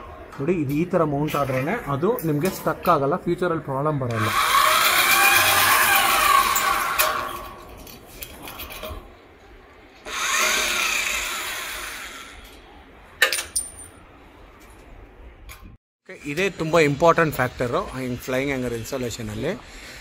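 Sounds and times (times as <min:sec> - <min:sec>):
electric drill running: 0:04.2 - 0:07.2, 0:10.1 - 0:12.5.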